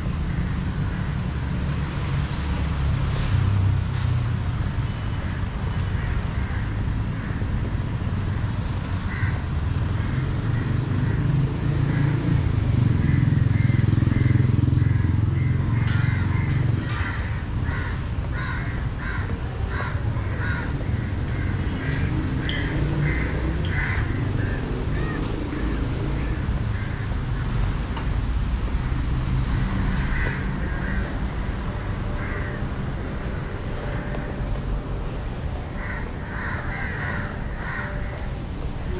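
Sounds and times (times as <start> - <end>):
passing vehicle rumble: 0.0 - 38.9
crows cawing: 9.0 - 12.2, 13.0 - 27.5, 29.8 - 31.4, 32.2 - 32.7, 35.8 - 38.3.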